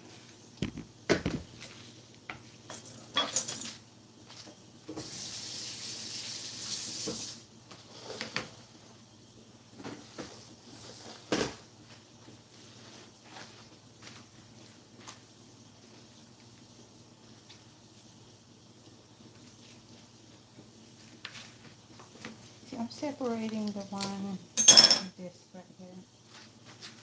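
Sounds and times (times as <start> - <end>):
hiss: 4.9 - 8.2.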